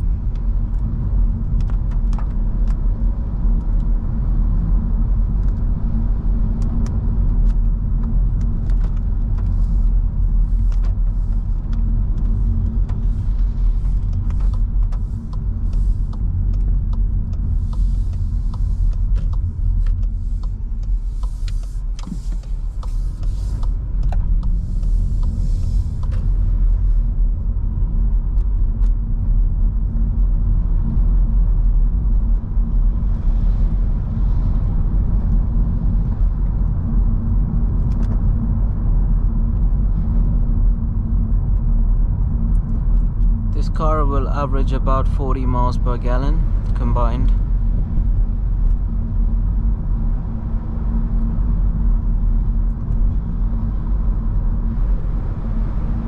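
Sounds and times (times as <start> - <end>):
engine and tyre rumble: 0.0 - 56.0
light ticks: 10.6 - 26.3.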